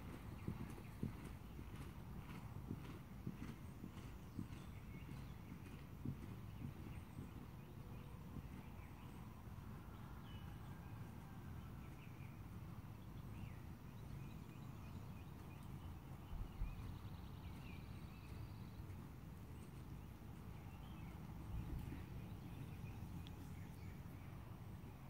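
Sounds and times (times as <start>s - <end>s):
hoofbeats on sand: 0.0s - 9.2s, 13.3s - 24.3s.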